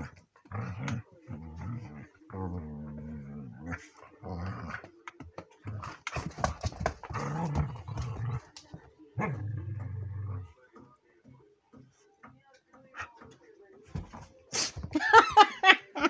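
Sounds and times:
dogs growling: 0.0 - 10.6.

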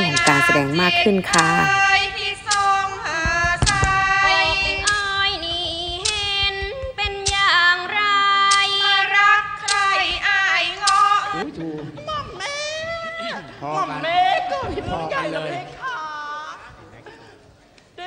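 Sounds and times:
woman singing ornamented notes: 0.0 - 2.2
sharp percussion strikes: 0.0 - 7.6.

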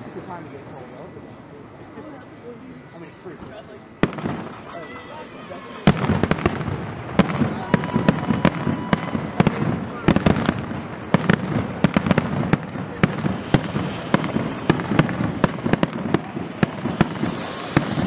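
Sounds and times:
firework shells bursting: 4.0 - 18.0.

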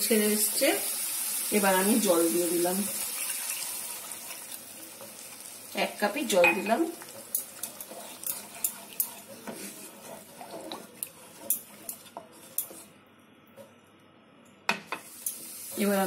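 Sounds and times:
wooden spatula scraping pan: 6.6 - 12.9.

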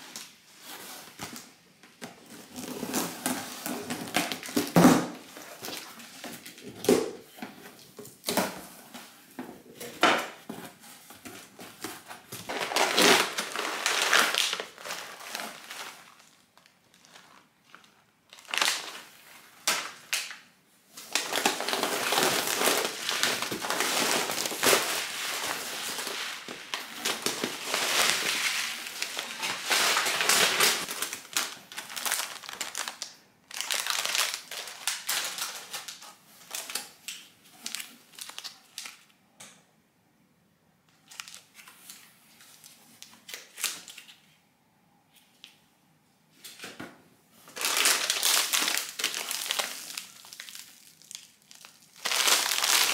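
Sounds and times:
plastic packets crinkling: 9.8 - 39.1, 41.0 - 44.2, 47.5 - 52.9.

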